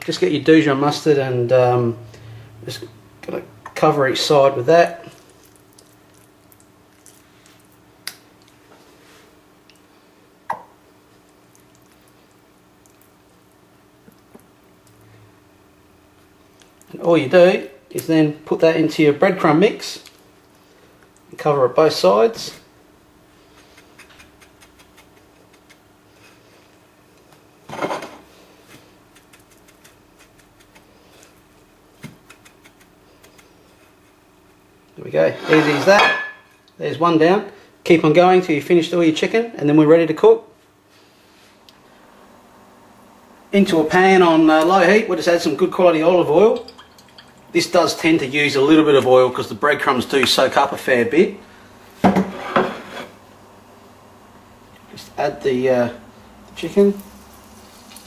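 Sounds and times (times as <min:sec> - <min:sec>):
faint steady hum: 0:00.0 - 0:58.0
breadcrumbs rustling and tapping: 0:28.6 - 0:34.6.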